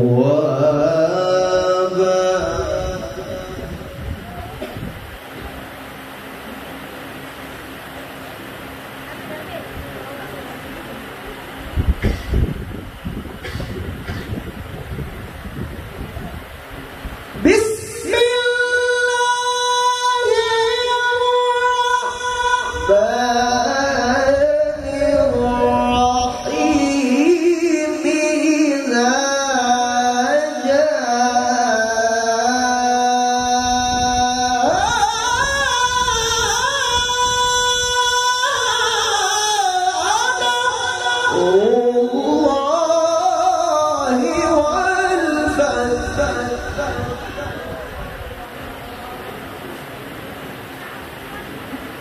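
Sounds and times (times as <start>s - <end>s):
man reciting melodically: 0.0s - 4.3s, 17.3s - 48.6s.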